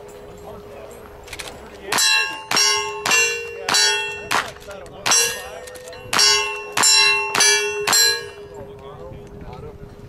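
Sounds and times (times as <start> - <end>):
steel targets clanging: 1.2 - 8.8
gunshots: 1.9 - 8.1.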